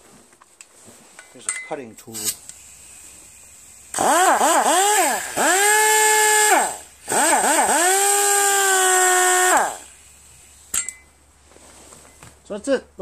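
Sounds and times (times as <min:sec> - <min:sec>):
exhaust air hissing: 0:02.0 - 0:12.0
pneumatic cut-off tool whining: 0:03.8 - 0:10.7.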